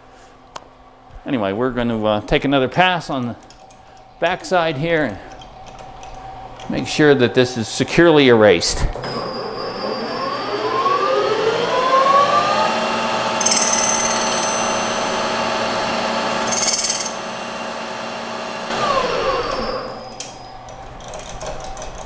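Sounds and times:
lathe motor winding down: 9.0s - 21.0s
metal lathe running: 9.4s - 20.7s.

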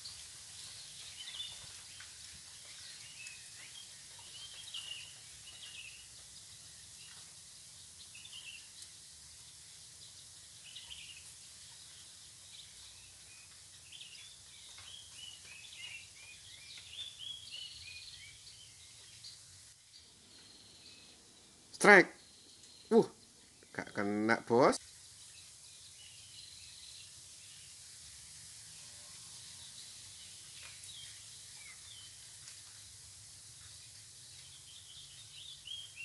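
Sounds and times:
faint riverside hiss: 0.0s - 36.0s
small birds chirping: 0.0s - 36.0s.

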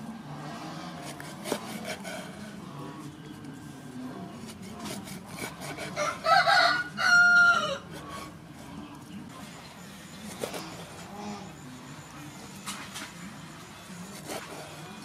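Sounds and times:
rooster crowing: 5.9s - 7.9s.

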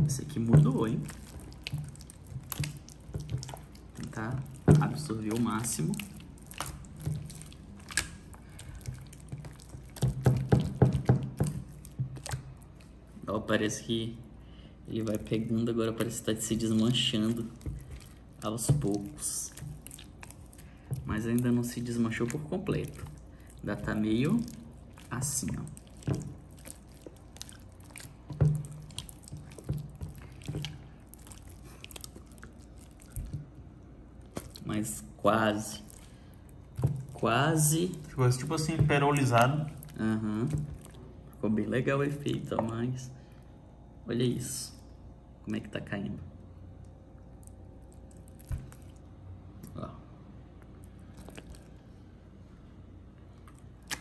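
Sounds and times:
slime squelching by hand: 0.0s - 43.8s, 46.6s - 54.0s
sticky slime pops: 53.8s - 54.0s.

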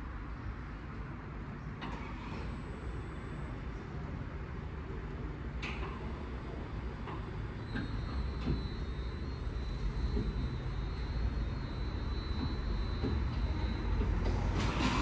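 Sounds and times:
thin high whine: 5.8s - 15.0s.

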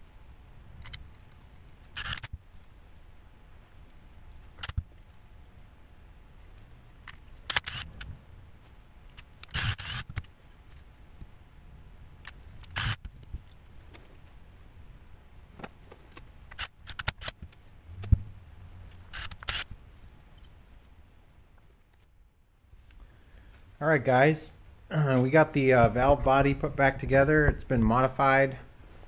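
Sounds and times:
cordless driver running: 9.4s - 10.2s
metal parts and tools clinking: 19.1s - 21.0s.

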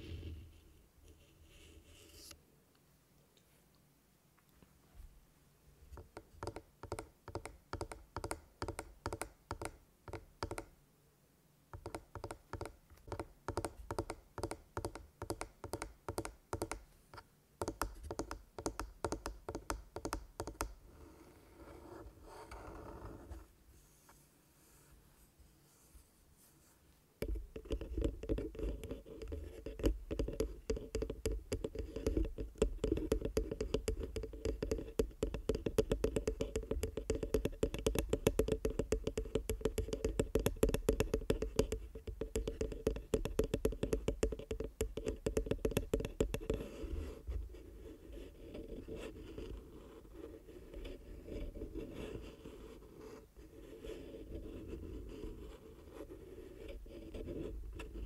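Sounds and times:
fingers scratching on microphone: 27.2s - 58.0s.

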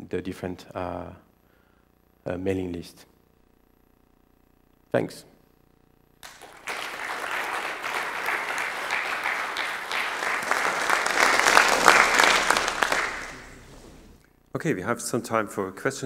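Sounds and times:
audience applauding: 6.2s - 14.2s.

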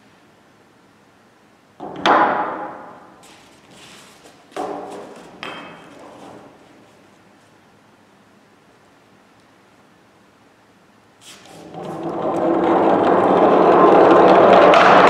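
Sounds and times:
objects knocking on wooden ramp: 4.5s - 6.5s, 11.7s - 15.0s.

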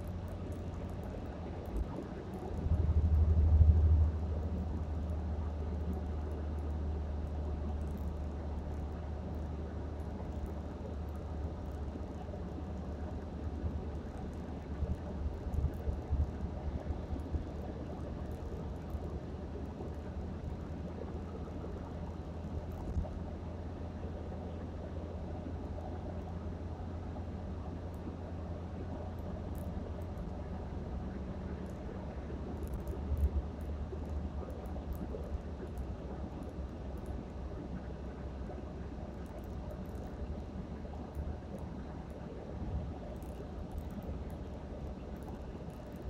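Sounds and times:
car road and engine rumble: 0.0s - 6.5s.

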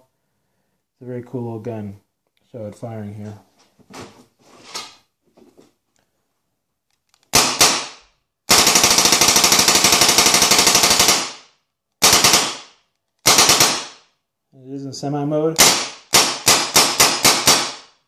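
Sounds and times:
paintball marker shots: 15.6s - 18.0s.

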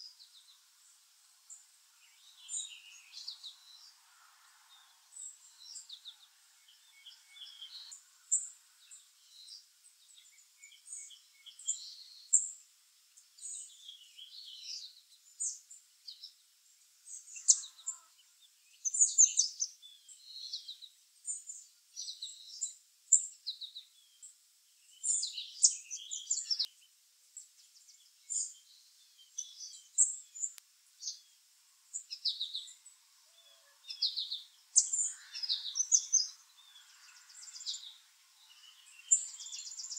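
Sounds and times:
songbirds chirping: 0.0s - 39.9s.

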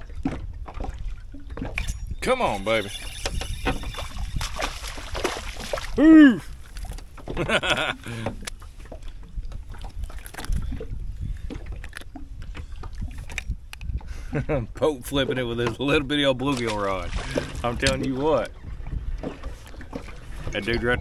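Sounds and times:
wind rumble on microphone: 0.0s - 21.0s
knocks and clicks of fishing rod: 0.2s - 5.8s, 6.8s - 14.1s, 15.6s - 18.5s
man muttering: 6.0s - 6.5s
man whooping: 6.0s - 6.5s.

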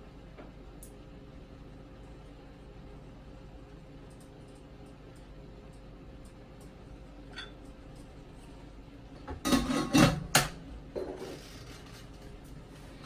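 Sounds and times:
kitchenware clattering: 7.3s - 7.6s, 9.3s - 11.5s
kitchenware clinking and knocking: 9.3s - 11.3s.

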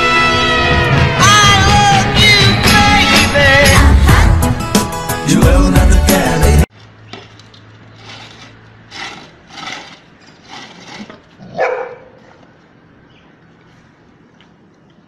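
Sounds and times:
background music: 0.0s - 6.7s
dog barking: 11.4s - 12.4s.

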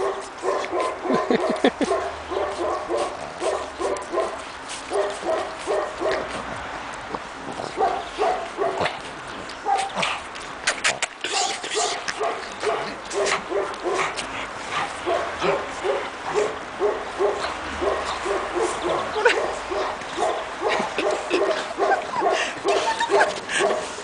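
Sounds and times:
puppies yipping and whimpering: 20.6s - 23.6s.

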